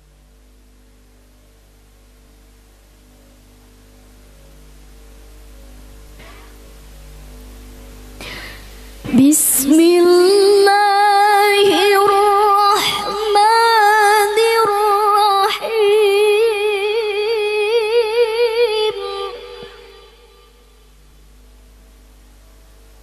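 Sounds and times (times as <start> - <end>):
woman chanting melodically into microphone: 9.0 - 20.6.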